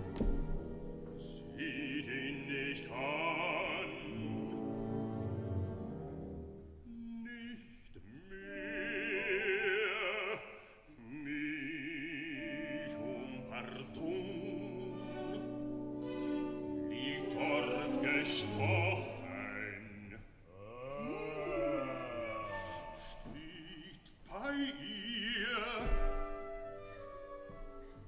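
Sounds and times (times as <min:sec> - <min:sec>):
operatic singing: 0:00.0 - 0:27.4
orchestra: 0:00.0 - 0:28.0.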